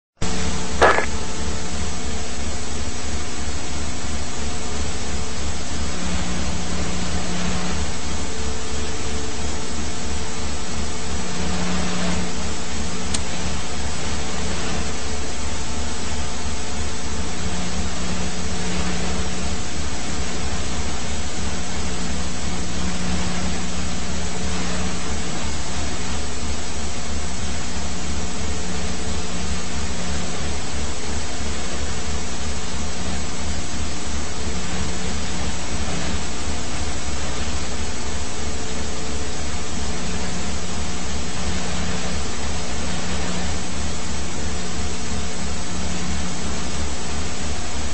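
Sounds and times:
even hiss: 0:00.2 - 0:03.3
helicopter turbine and rotor: 0:00.2 - 0:47.9.

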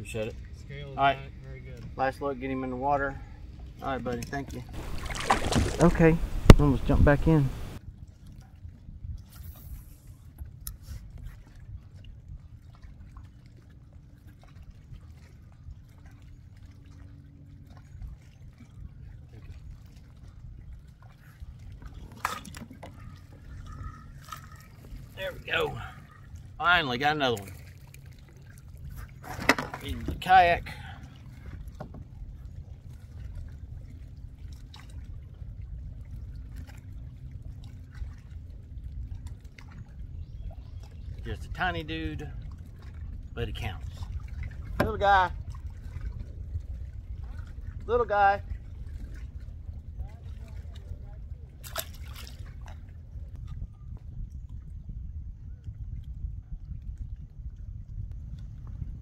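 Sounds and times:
water lapping against hull: 0:00.0 - 0:59.0
short clicks and splashes: 0:04.1 - 0:07.8, 0:51.6 - 0:53.5
steady low rumble: 0:52.4 - 0:59.0.

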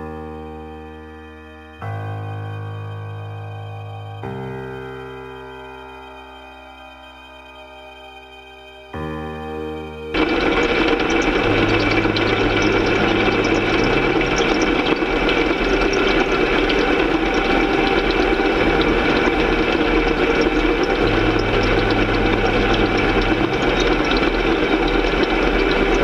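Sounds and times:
combine harvester drone: 0:10.2 - 0:26.0.

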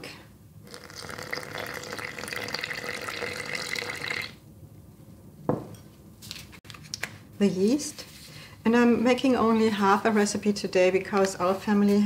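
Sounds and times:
milk trickling into flour: 0:00.7 - 0:04.4
knock: 0:05.5 - 0:05.8.

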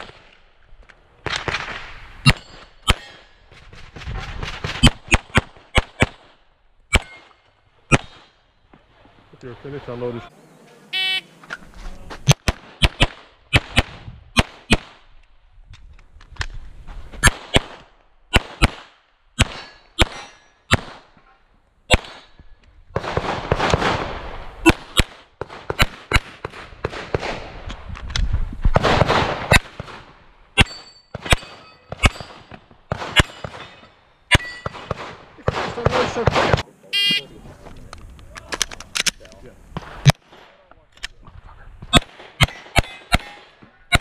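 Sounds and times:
pistol shots: 0:01.2 - 0:03.3, 0:04.4 - 0:08.4, 0:12.2 - 0:15.1, 0:17.2 - 0:21.1, 0:21.9 - 0:22.4, 0:23.0 - 0:27.5, 0:28.8 - 0:37.2, 0:41.9 - 0:44.0.

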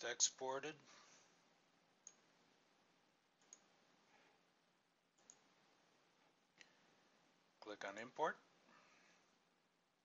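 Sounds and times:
faint computer mouse clicks: 0:02.0 - 0:02.2, 0:03.4 - 0:03.7, 0:05.2 - 0:05.4.

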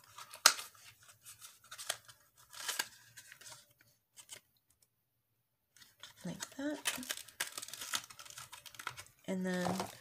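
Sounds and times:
plastic packaging crinkling and clicking: 0:05.8 - 0:10.0.

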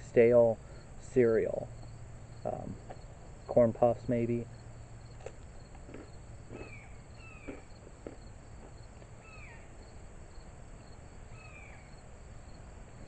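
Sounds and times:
insects chirping: 0:00.0 - 0:13.0
snack being chewed: 0:05.2 - 0:06.8, 0:07.4 - 0:08.8
bird whistled call: 0:06.6 - 0:07.5.

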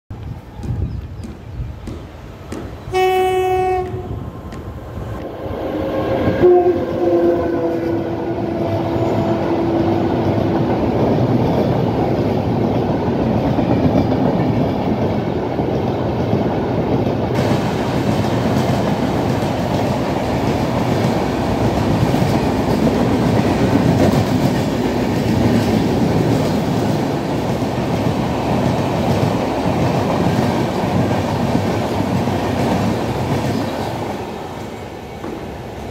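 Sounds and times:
train coaches rumbling past: 0:00.1 - 0:35.9
locomotive horn: 0:02.9 - 0:04.2, 0:05.7 - 0:10.6.

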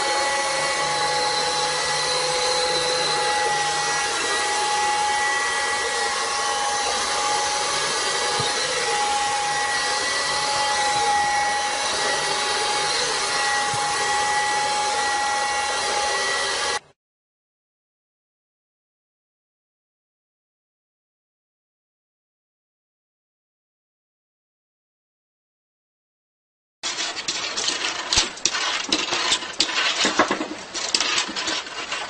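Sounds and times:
small electric motor whirring: 0:00.0 - 0:16.8.

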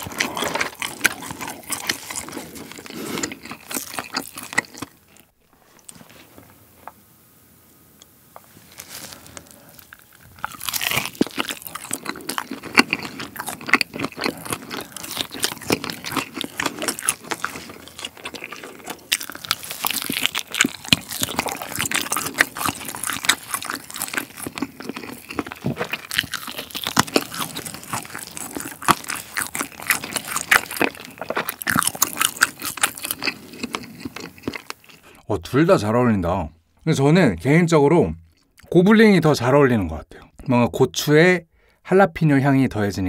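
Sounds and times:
person chewing crunchy food: 0:00.0 - 0:06.5, 0:08.6 - 0:35.3.

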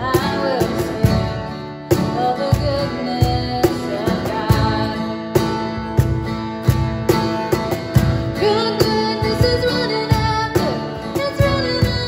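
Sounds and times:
woman singing: 0:00.0 - 0:05.6, 0:08.3 - 0:12.0
cajon thumps: 0:00.0 - 0:12.0
strummed acoustic guitar: 0:00.0 - 0:12.0.

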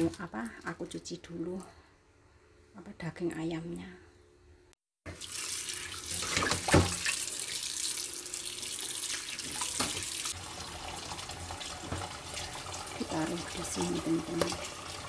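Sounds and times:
tap running into sink: 0:06.2 - 0:07.2, 0:09.4 - 0:10.1, 0:11.8 - 0:12.2.

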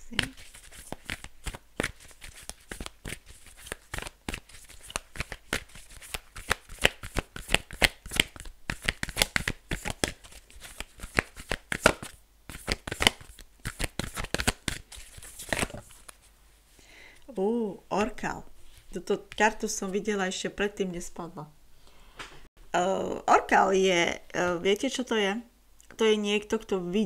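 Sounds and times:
cards being shuffled: 0:00.0 - 0:16.3.

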